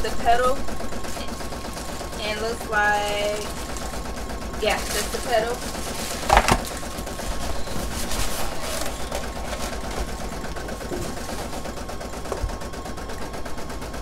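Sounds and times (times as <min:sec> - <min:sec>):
plastic bags crinkling: 0:02.8 - 0:11.8.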